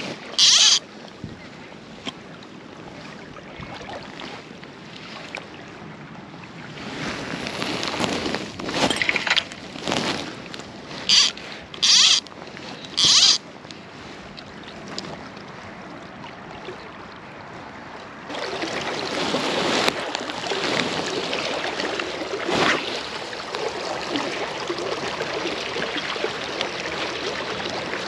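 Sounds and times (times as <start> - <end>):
river water rushing: 0.0 - 1.1, 10.2 - 13.4, 18.2 - 28.0
wind on microphone: 0.0 - 2.0.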